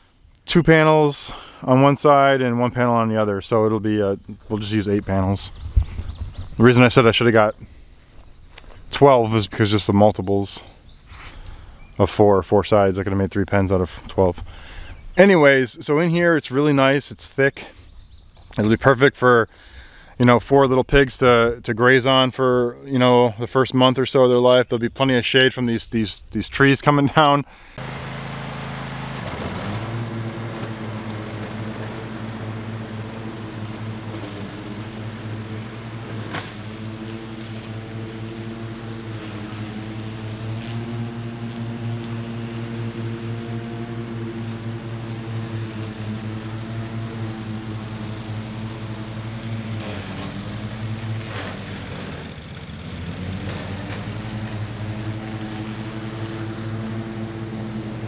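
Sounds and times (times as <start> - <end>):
riding mower engine running: 0.0 - 15.6, 27.6 - 58.0.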